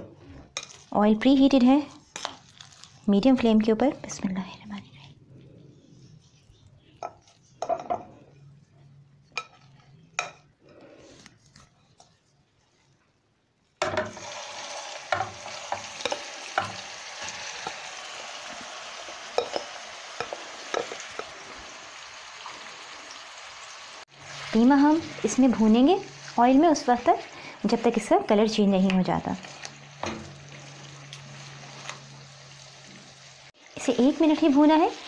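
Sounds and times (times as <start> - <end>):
meat sizzling in hot oil: 14.1 - 28.6, 29.3 - 35.0.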